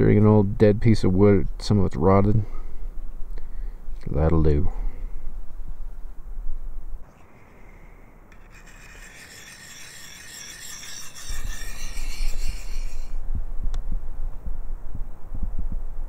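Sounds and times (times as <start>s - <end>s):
high-pitched rasping hiss: 7.1s - 13.2s
wind buffeting microphone: 11.4s - 16.0s.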